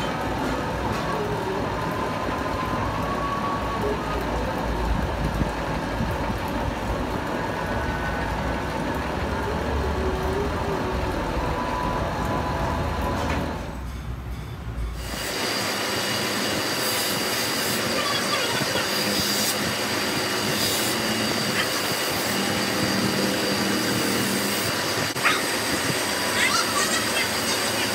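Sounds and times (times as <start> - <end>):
metal lathe running: 14.9 - 27.9.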